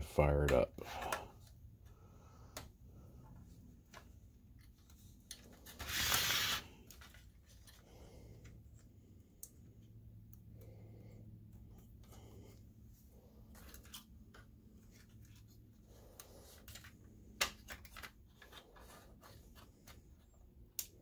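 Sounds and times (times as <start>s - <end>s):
faint clicks of cable connectors: 19.6s - 21.0s.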